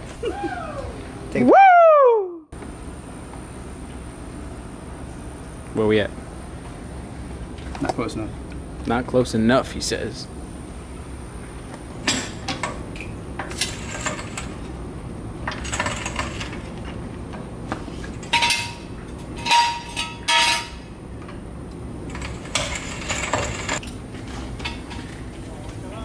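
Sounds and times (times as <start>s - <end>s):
metal floor jack clanking: 15.5s - 16.7s, 18.2s - 20.8s, 22.1s - 24.0s.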